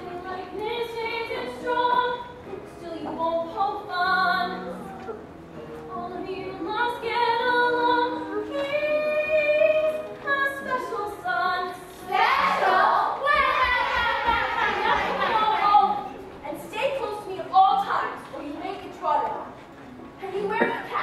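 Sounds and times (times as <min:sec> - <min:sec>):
young chorus singing: 0:10.6 - 0:16.1.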